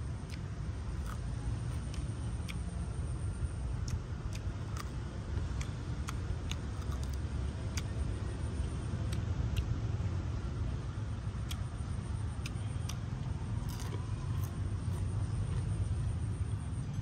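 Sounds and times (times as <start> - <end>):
steady low rumble: 0.0 - 17.0
crunching and crackling: 0.3 - 2.6, 3.8 - 8.0, 12.4 - 15.7.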